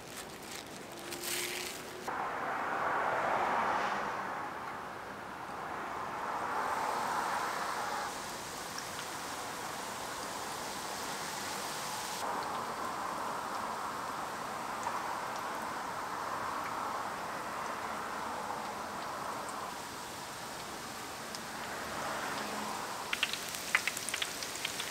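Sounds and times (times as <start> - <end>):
food sizzling in frying oil: 6.7 - 15.6, 18.7 - 24.9.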